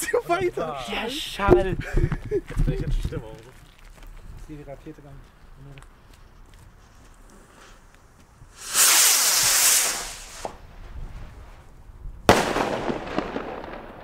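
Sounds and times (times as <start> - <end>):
firework rocket hissing: 8.5 - 11.4
firework bang: 8.6 - 10.9, 12.2 - 14.0.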